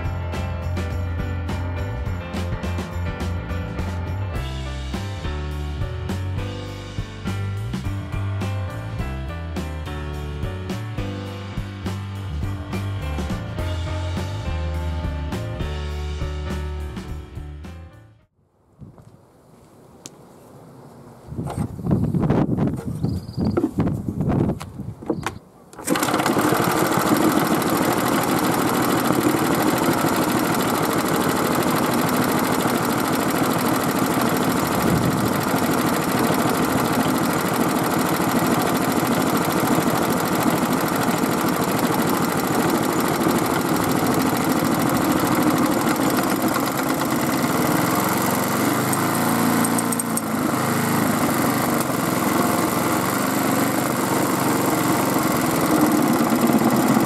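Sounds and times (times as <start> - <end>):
small gasoline engine running: 25.8 - 57.0.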